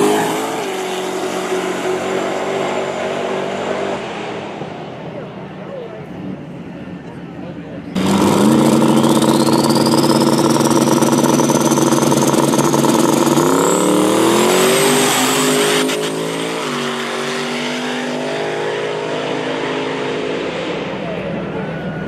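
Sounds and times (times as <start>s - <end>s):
high engine whine: 0.0s - 22.0s
racing car engine at full throttle: 0.0s - 22.0s
engine crackle: 8.0s - 16.2s.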